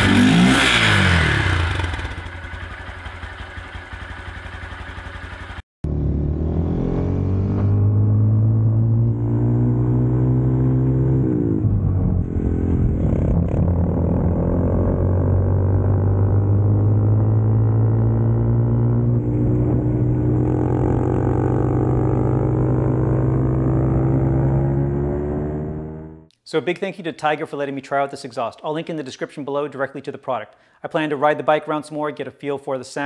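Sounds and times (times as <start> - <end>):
motorcycle engine: 0.0 - 26.3.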